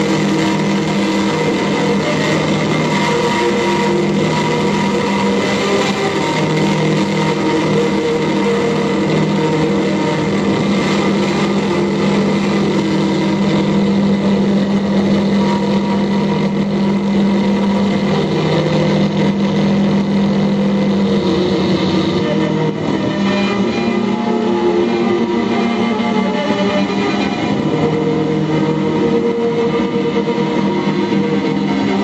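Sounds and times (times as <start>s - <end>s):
amplified violin and electronic drone: 0.0s - 32.0s.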